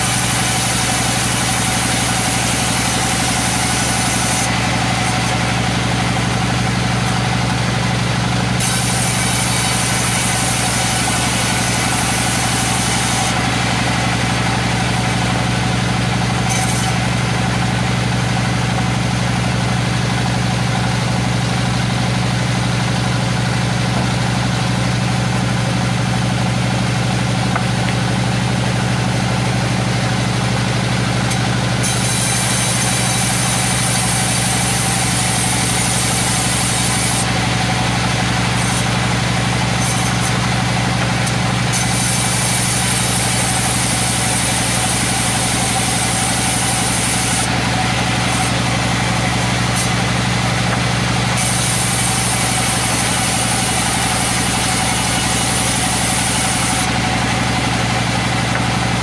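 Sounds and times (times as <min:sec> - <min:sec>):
high hiss of saw cutting wood: 0:00.0 - 0:05.5, 0:08.6 - 0:14.3, 0:16.4 - 0:17.0, 0:31.8 - 0:37.3, 0:38.5 - 0:39.0, 0:39.8 - 0:40.4, 0:41.7 - 0:48.6, 0:49.7 - 0:50.0, 0:51.4 - 0:56.9
band saw droning: 0:00.0 - 0:59.0.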